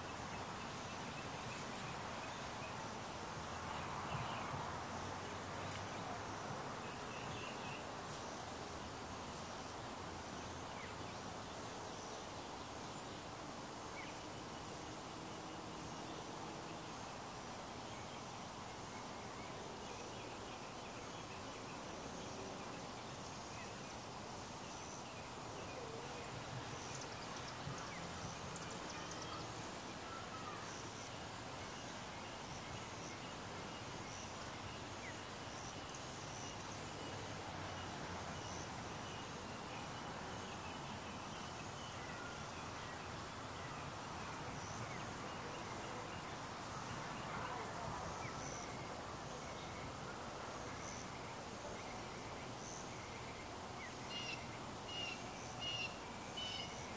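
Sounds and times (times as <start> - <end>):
steady background noise: 0.0 - 56.9
insect calls: 16.9 - 56.9
faint bird chirps: 48.2 - 56.9.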